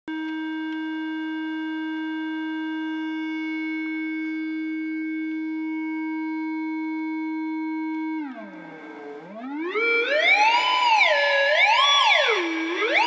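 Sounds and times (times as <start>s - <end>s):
electronic test tone: 5.8s - 13.0s.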